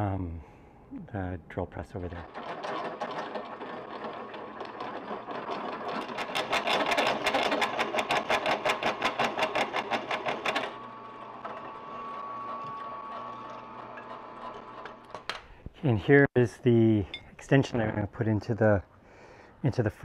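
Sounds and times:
drill press motor whining: 2.2 - 15.3.

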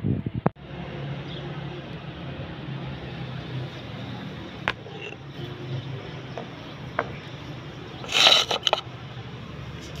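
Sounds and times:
stone scraping: 4.6 - 5.5, 8.0 - 9.0.

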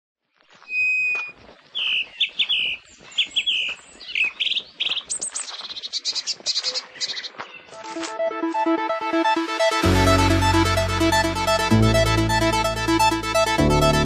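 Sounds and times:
birds singing: 0.5 - 7.8.

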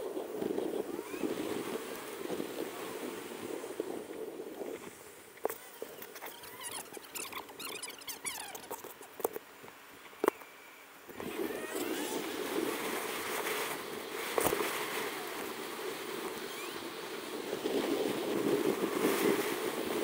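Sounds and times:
wheels rushing on road: 0.0 - 9.6, 11.1 - 20.0
wind: 0.0 - 20.0
high chirps and clicks: 6.0 - 9.3.

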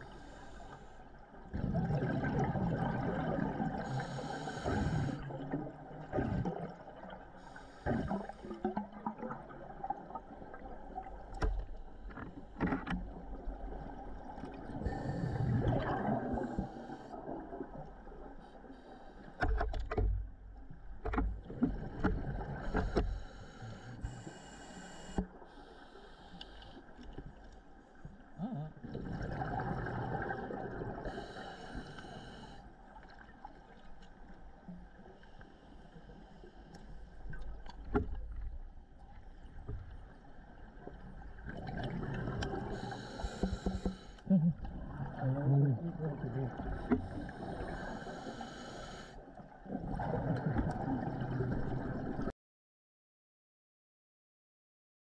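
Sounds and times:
bubbles gurgling and popping: 1.6 - 3.8, 15.4 - 16.5, 28.8 - 31.1, 41.4 - 42.7, 44.5 - 47.6, 49.6 - 52.3
regulator hissing inhalation: 42.8 - 44.2, 47.4 - 49.2.

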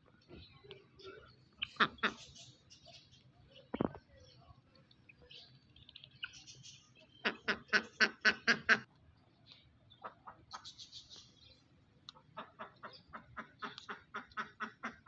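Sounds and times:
poultry calling: 1.0 - 3.0, 5.9 - 8.9, 12.1 - 15.0.

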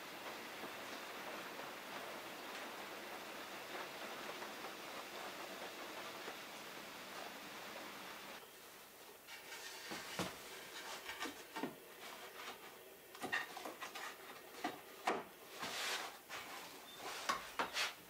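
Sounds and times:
gloved hands rubbing on wood: 9.2 - 18.0
wooden knocks taps and scrapes: 9.3 - 18.0.

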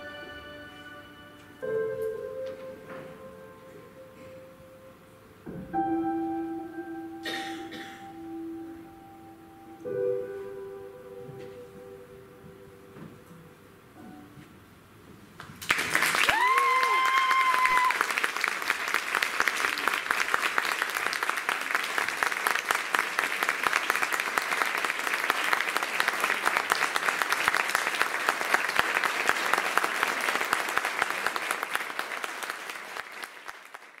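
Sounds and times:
audience applauding: 15.4 - 34.0.

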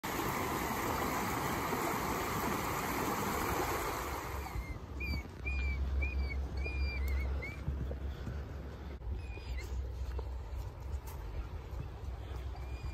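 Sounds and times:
water rushing over rocks: 0.0 - 4.6.

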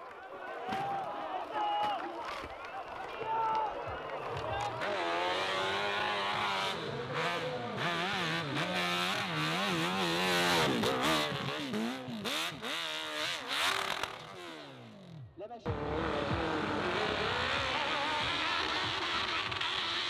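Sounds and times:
dirt bike engine revving: 4.8 - 20.0.

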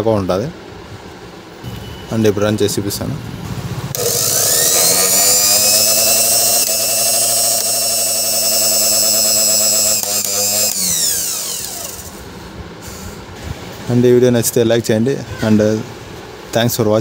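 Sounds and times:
mixer grinder motor whining: 3.9 - 12.3.

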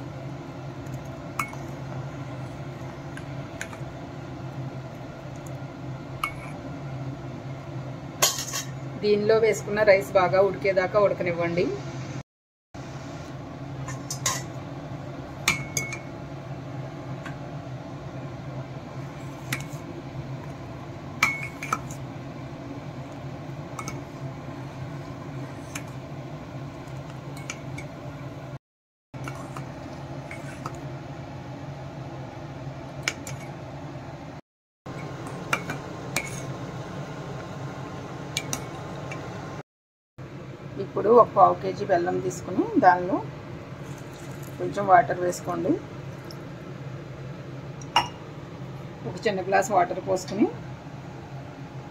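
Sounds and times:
steady low hum: 0.0 - 12.2, 12.8 - 28.6, 29.2 - 39.6
spoon clinking against metal pot: 15.5 - 16.1, 47.9 - 48.2.

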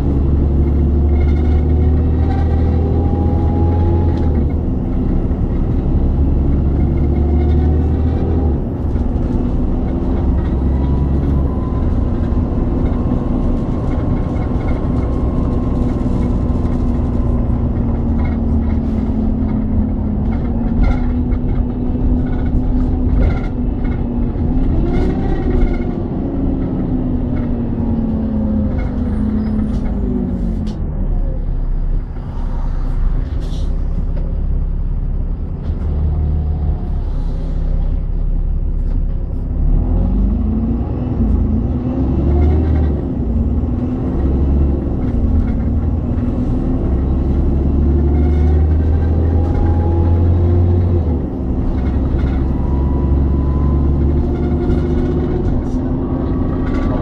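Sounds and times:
bus body rattles: 0.0 - 57.0
bus diesel engine rumble: 0.0 - 57.0.

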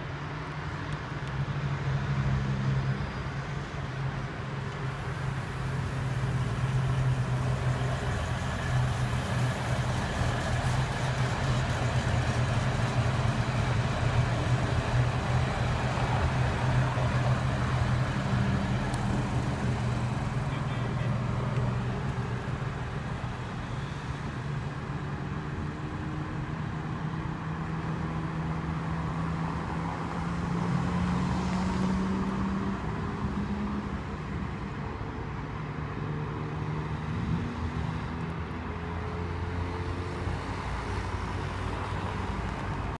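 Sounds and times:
large engine running: 4.9 - 23.3.

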